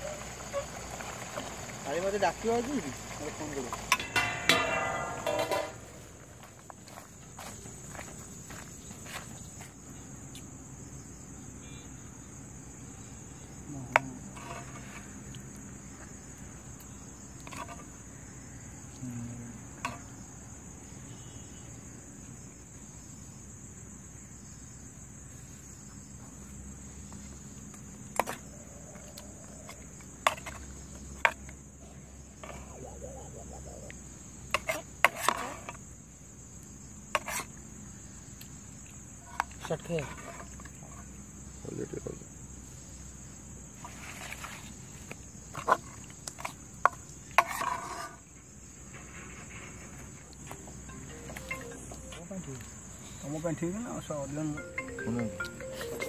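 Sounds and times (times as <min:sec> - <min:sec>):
crickets chirring: 0:00.0 - 0:56.0
steel ladle clinking on pot: 0:03.9 - 0:05.8.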